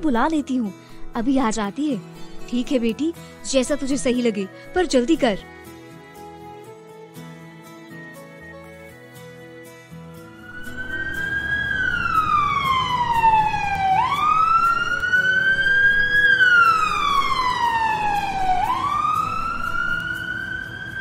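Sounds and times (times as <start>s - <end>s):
ambulance siren wailing: 10.2s - 21.0s.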